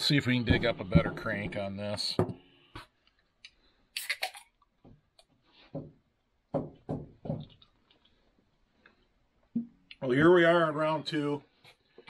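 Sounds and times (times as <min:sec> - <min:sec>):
drink can cracked open with hiss: 0:04.0 - 0:04.4.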